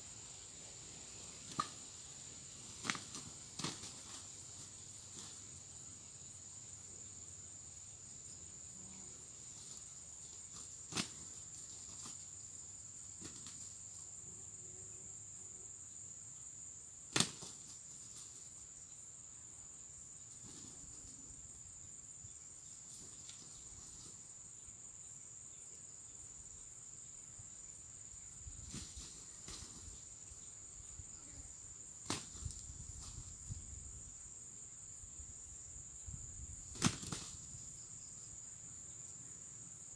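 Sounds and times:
sharp snaps: 1.4 - 1.8.

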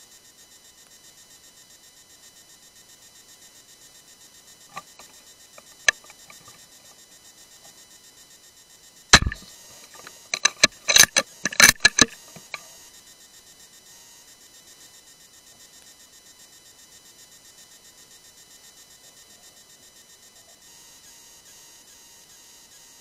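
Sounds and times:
crickets chirping: 0.7 - 12.8
sharp clicks and knocks: 4.7 - 6.6, 9.2 - 12.7
rifle shot: 9.2 - 12.2.

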